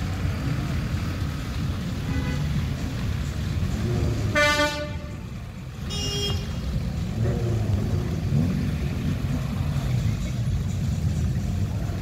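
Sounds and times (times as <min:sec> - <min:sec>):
car engines running: 0:00.0 - 0:12.0
car horn toots: 0:04.3 - 0:05.2, 0:05.8 - 0:06.6.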